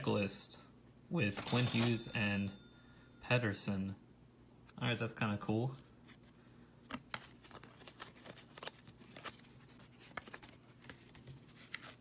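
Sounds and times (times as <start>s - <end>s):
cards being flipped by hand: 6.9s - 12.0s.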